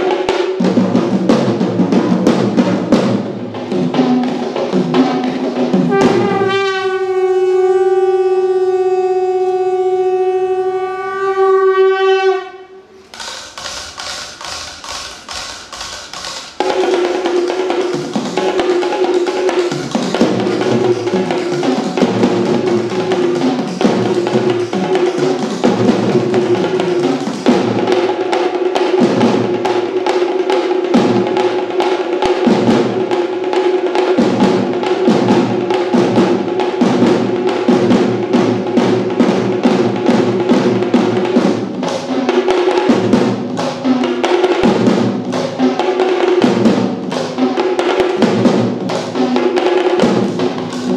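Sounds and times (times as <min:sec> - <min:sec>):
drum ensemble beating fast rhythms: 0:00.0 - 0:09.0, 0:13.0 - 0:50.9.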